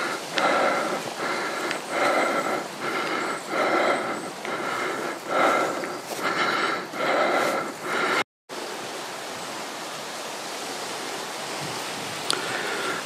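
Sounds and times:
wind on microphone: 11.5s - 13.0s.

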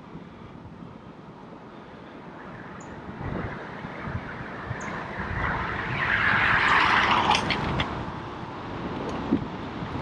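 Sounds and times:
wind on microphone: 2.2s - 10.0s
car passing close by: 2.5s - 8.3s.

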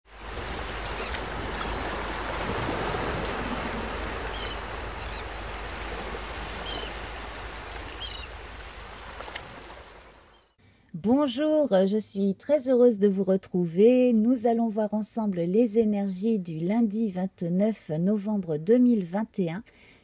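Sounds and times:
sea waves washing on shore: 0.1s - 10.3s.

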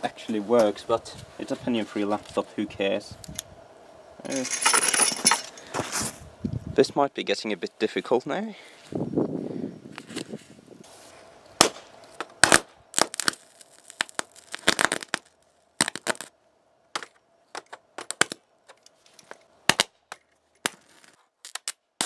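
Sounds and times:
electric arcing cracks and snaps: 11.6s - 16.3s, 20.6s - 22.0s.

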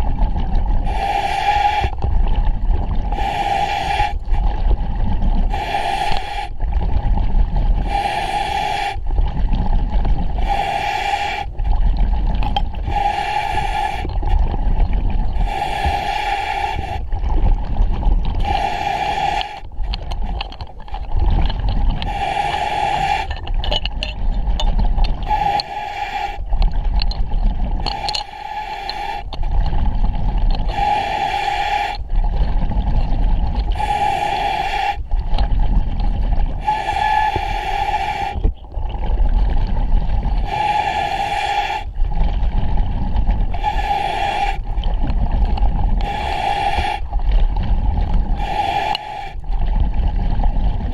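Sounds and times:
exhaled bubbles rumbling: 0.0s - 50.9s
regulator hissing inhalation: 0.9s - 2.0s, 3.2s - 4.2s, 5.5s - 6.5s, 7.8s - 9.0s, 10.4s - 11.5s, 12.8s - 14.1s, 15.4s - 17.0s, 18.4s - 19.6s, 22.0s - 23.4s, 25.3s - 26.4s, 27.9s - 29.3s, 30.7s - 32.0s, 33.8s - 35.0s, 36.6s - 38.5s, 40.4s - 41.9s, 43.6s - 44.6s, 46.0s - 47.0s, 48.4s - 49.4s.

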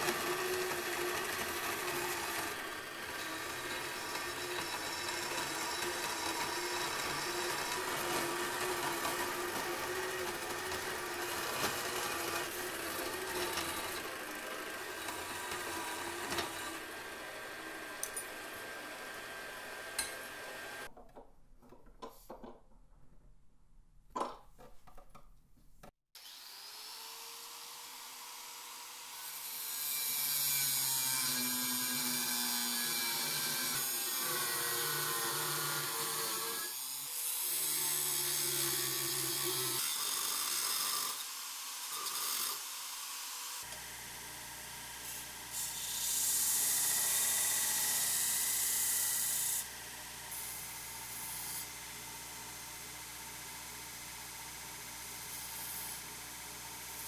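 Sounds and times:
angle grinder grinding steel: 0.0s - 20.9s, 29.2s - 42.7s
band saw cutting steel: 0.0s - 20.9s, 26.2s - 57.0s
clicks and knocks: 20.9s - 23.4s, 24.1s - 25.9s.

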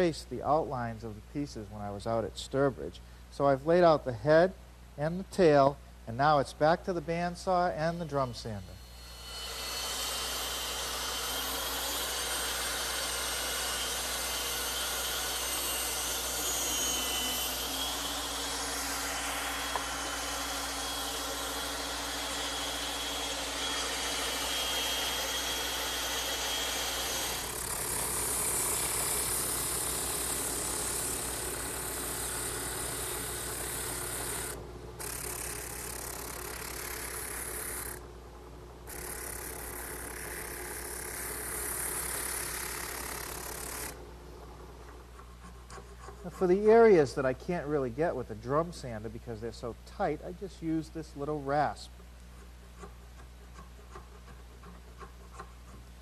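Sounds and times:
bright hissy grinding: 7.2s - 38.1s, 38.8s - 44.1s
bandsaw cutting wood: 7.9s - 38.1s, 38.8s - 44.1s.

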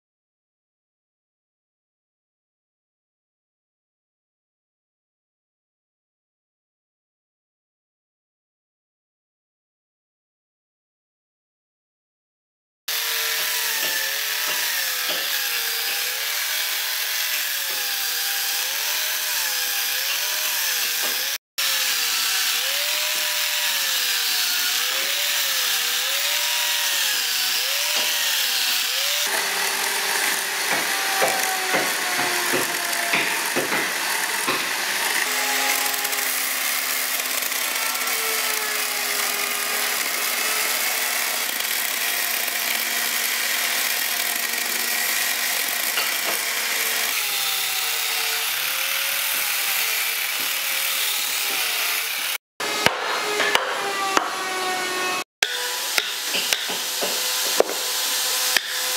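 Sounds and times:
electric chainsaw cutting wood: 12.9s - 58.9s
sharp knocks and clatter: 30.7s - 34.8s, 56.0s - 57.8s.

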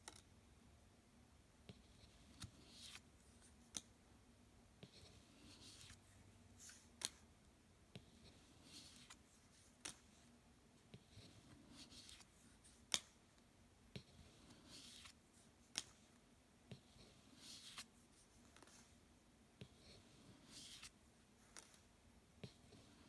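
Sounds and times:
cards sliding papery swishes: 11.5s - 13.1s, 14.5s - 16.0s, 17.3s - 18.9s, 20.4s - 21.8s.

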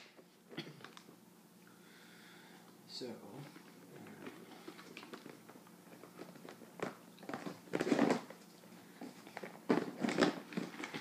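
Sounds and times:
plastic bags crinkling: 3.9s - 11.0s.

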